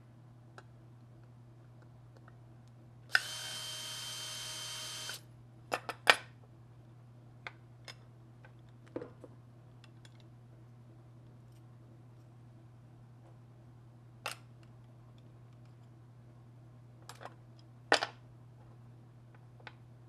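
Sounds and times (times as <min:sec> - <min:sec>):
cordless drill running: 0:03.1 - 0:05.2.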